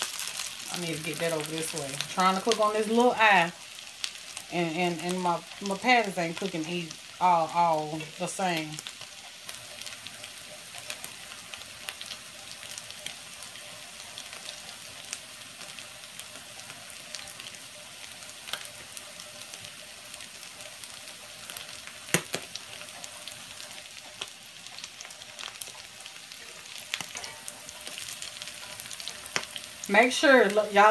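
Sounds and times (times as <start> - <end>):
patties sizzling in oil: 0.0 - 30.9.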